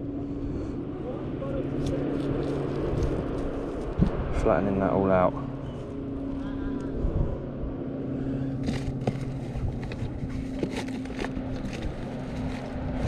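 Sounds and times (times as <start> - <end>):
low engine hum: 0.0 - 13.0
handling clicks and rustles: 8.5 - 13.0.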